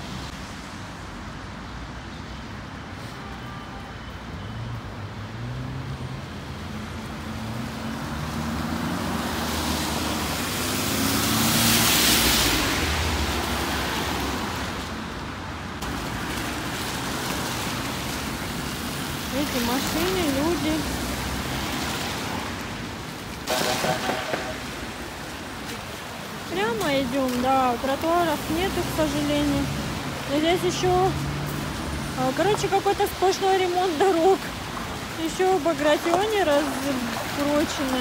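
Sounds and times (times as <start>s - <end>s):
tyres hissing on wet road: 0.0s - 38.0s
car engine passing: 5.2s - 14.8s.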